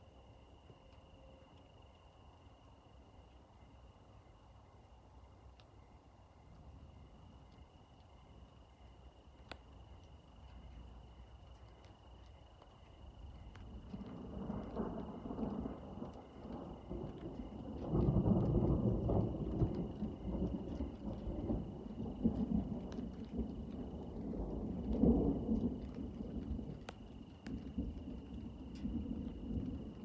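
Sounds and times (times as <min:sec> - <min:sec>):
distant thunder rumbling: 0:09.8 - 0:30.0.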